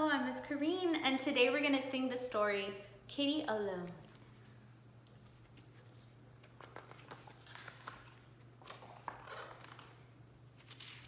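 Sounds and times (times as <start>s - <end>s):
low steady hum: 0.0s - 11.0s
book pages turning: 4.1s - 11.0s.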